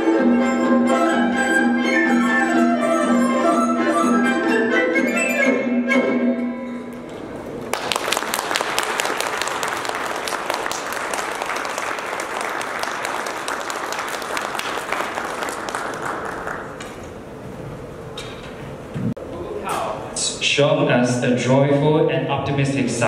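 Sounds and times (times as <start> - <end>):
audience applauding: 7.6 - 17.1.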